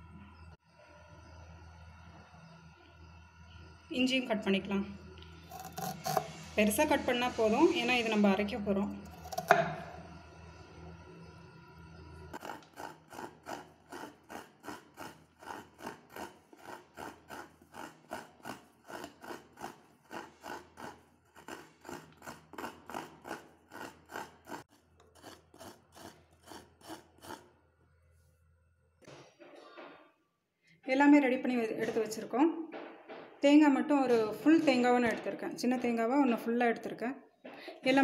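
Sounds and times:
coconut being grated: 0:05.4 - 0:08.2, 0:08.9 - 0:09.9, 0:12.3 - 0:27.6.

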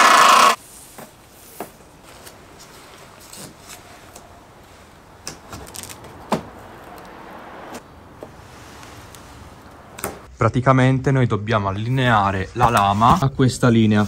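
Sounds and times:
masking tape rustling: 0:00.5 - 0:10.2.

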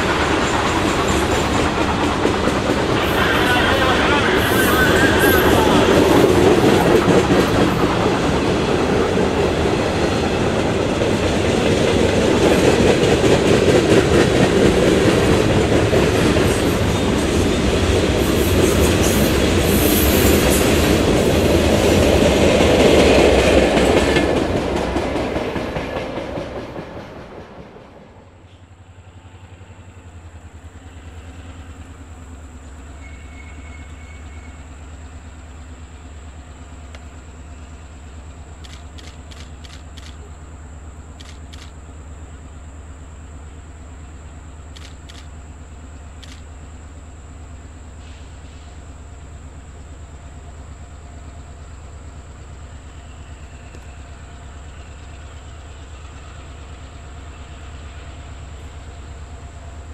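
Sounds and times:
freight train wheels clattering: 0:00.0 - 0:28.8.

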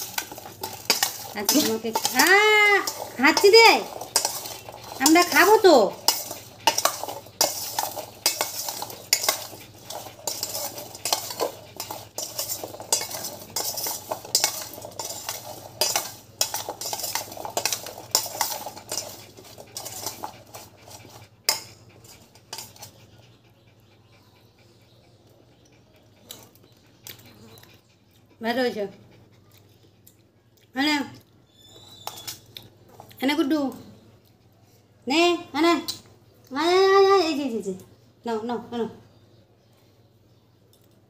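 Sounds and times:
metal spoon scraping steel bowl: 0:00.0 - 0:23.1, 0:31.7 - 0:32.5.

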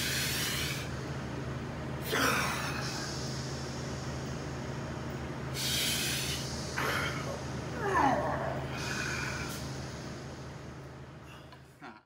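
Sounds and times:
man breathing forcefully: 0:00.0 - 0:01.0, 0:02.0 - 0:04.6, 0:05.5 - 0:07.7, 0:08.6 - 0:10.6
steady low hum: 0:00.0 - 0:12.0.

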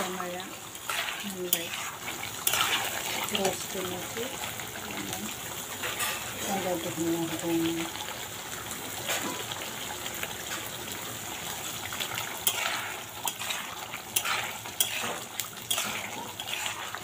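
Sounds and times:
curry sizzling in a pan: 0:00.0 - 0:17.0
spatula scraping a metal pan: 0:00.8 - 0:03.1, 0:05.8 - 0:06.4, 0:12.4 - 0:17.0.

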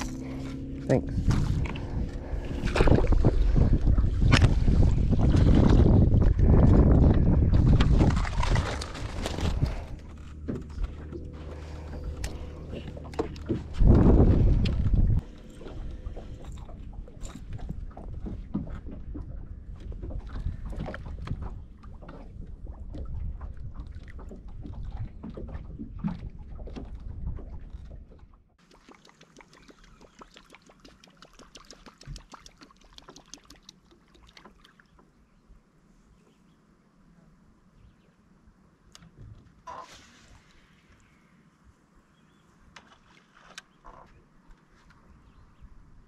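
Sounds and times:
wind rumble on microphone: 0:00.0 - 0:28.1
knocks and thumps on boat deck: 0:12.6 - 0:15.9.

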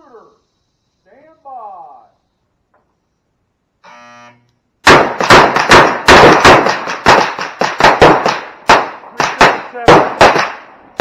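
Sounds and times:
rapid pistol shots: 0:04.8 - 0:11.0.

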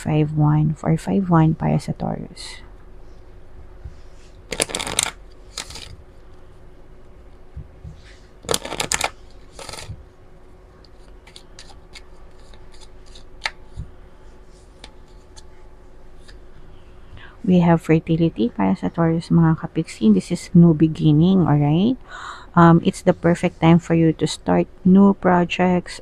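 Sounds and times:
cards shuffling: 0:04.5 - 0:06.0, 0:08.4 - 0:10.0, 0:10.9 - 0:13.8.

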